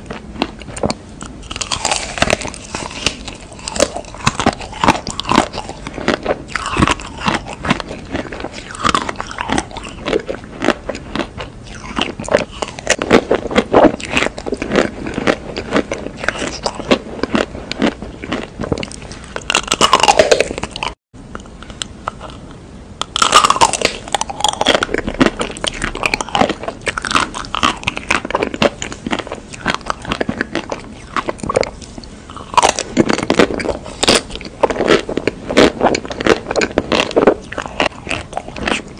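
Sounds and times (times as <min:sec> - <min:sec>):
chocolate shell crunching: 0:00.4 - 0:21.0, 0:23.0 - 0:31.7.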